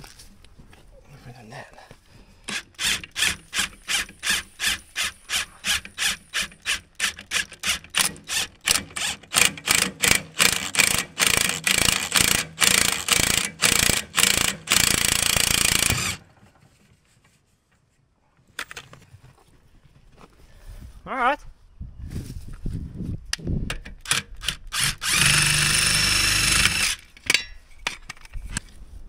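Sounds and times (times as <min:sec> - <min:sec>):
impact wrench pulsing rasp: 0:02.5 - 0:16.2, 0:24.5 - 0:27.0.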